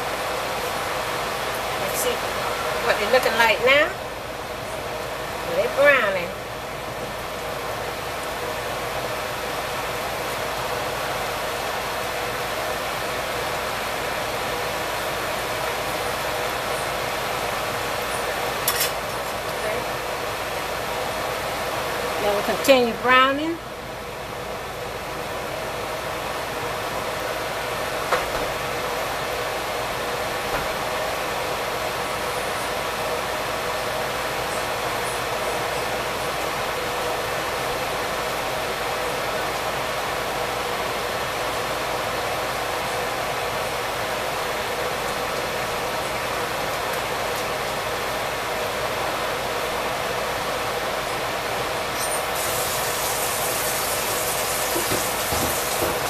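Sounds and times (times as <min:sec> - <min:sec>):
deep-frying sizzle: 0:52.0 - 0:56.0
oil popping: 0:52.4 - 0:56.0.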